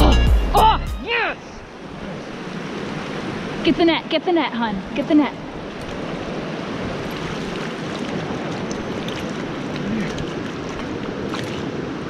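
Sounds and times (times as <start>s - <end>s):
fast-flowing river rushing: 1.0s - 12.0s
fish splashing at surface: 6.9s - 11.8s.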